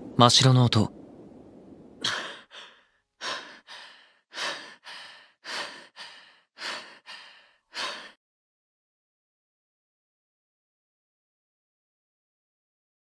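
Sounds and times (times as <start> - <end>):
person breathing heavily: 2.0 - 8.2.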